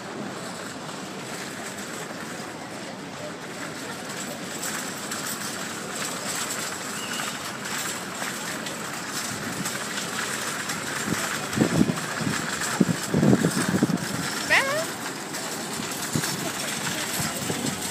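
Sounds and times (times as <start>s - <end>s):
outdoor city square ambience: 0.0s - 17.9s
wind noise on microphone: 11.0s - 14.9s, 15.9s - 17.9s.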